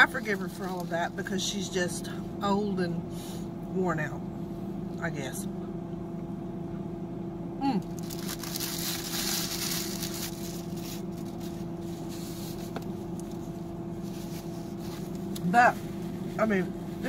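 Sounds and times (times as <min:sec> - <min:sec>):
car engine and air conditioner hum: 0:00.0 - 0:17.0
paper wrapper crinkling: 0:07.8 - 0:13.5.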